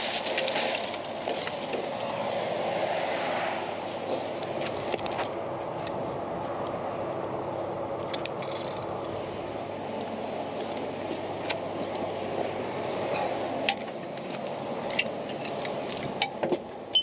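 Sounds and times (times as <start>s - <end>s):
motorway traffic rumble: 0.0s - 17.0s.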